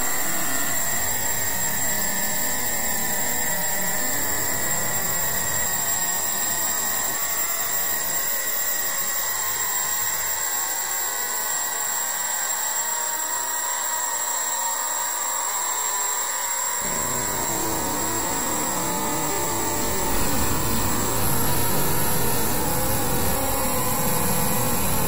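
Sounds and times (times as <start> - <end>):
faint high steady tones: 0.0 - 11.5, 16.8 - 25.0
loud static rushing noise: 16.8 - 25.0.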